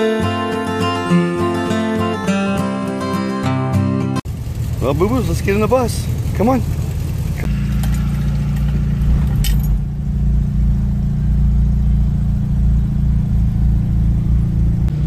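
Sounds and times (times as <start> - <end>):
car engine idling: 4.2 - 15.0.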